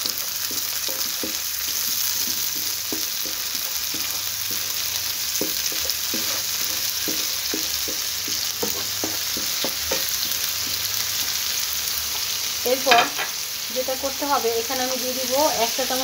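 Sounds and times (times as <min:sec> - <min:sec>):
spatula scraping a pan: 0:00.0 - 0:12.3
food sizzling in hot oil: 0:00.0 - 0:16.0.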